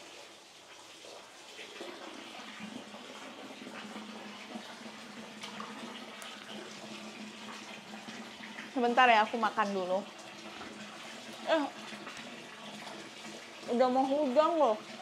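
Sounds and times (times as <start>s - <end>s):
running and splashing water: 0.0s - 15.0s.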